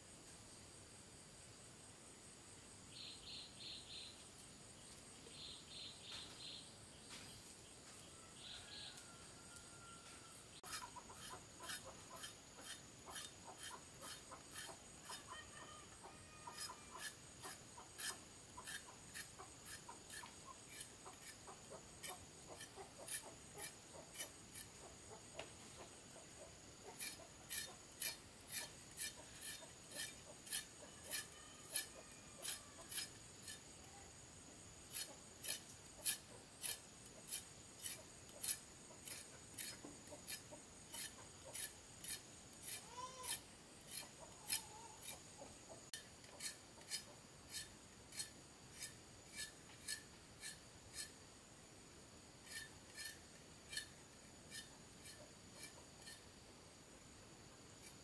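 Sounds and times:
hand tool rasping: 10.6 - 15.3, 16.6 - 21.4, 22.0 - 24.8, 26.9 - 33.7, 34.9 - 45.2, 45.9 - 51.2, 52.4 - 56.2.

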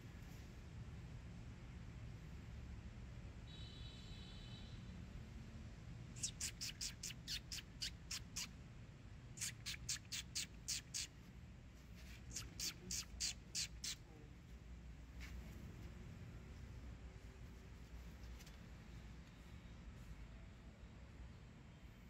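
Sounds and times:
small animal chirping: 6.2 - 8.6, 9.3 - 11.2, 12.1 - 14.3.

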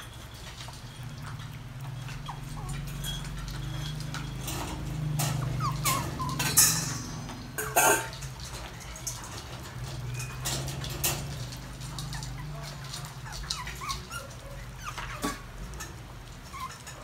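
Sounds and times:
puppies eating clicks and taps: 0.0 - 17.0
sharp clatters: 0.0 - 17.0
puppy squeaks: 2.0 - 4.4, 5.3 - 7.2, 11.9 - 17.0.

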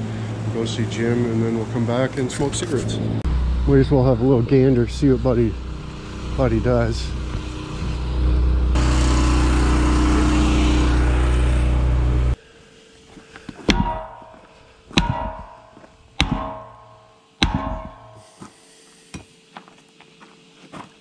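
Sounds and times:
steady low drone: 0.0 - 12.4, 13.7 - 18.4
hammer blows on tire rim: 13.7 - 18.5.

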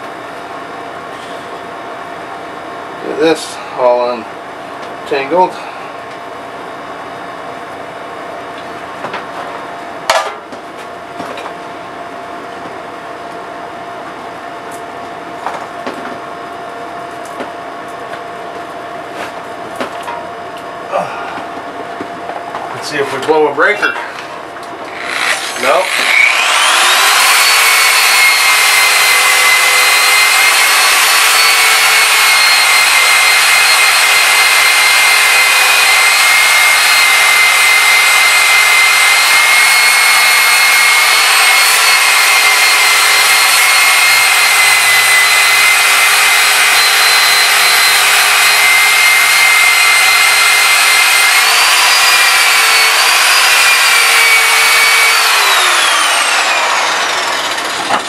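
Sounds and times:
angle grinder sanding wood: 24.9 - 58.0.

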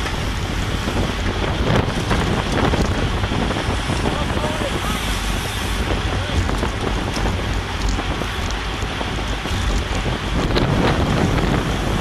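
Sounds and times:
wind rushing over microphone: 0.0 - 12.0.

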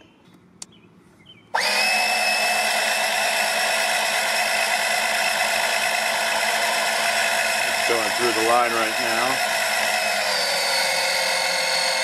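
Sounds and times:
electric pump whining: 1.5 - 12.0.

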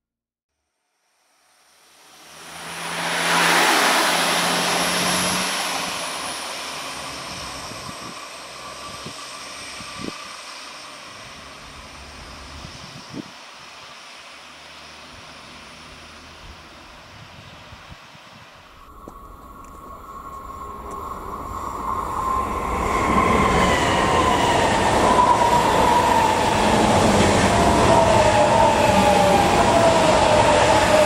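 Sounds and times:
high whine of train: 1.3 - 31.0
passenger train passing: 1.8 - 31.0.

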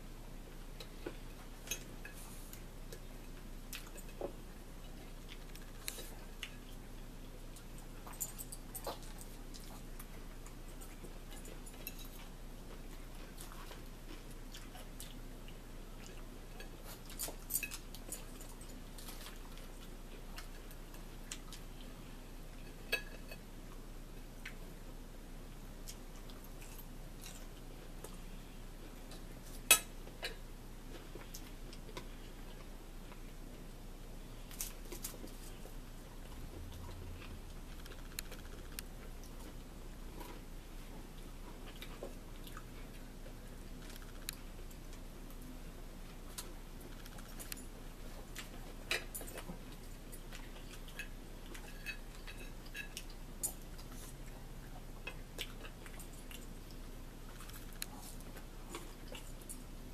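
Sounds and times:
low steady hum: 0.0 - 59.9
metal forks clinking on dishes: 11.3 - 12.2, 16.6 - 18.4.

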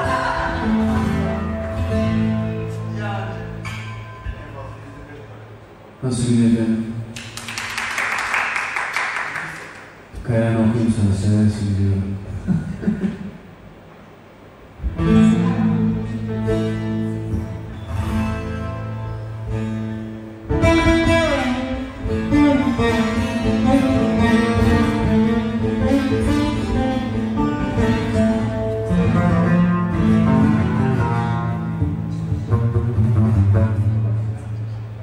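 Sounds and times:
saz and guitar playing: 0.0 - 5.9, 14.7 - 35.0.

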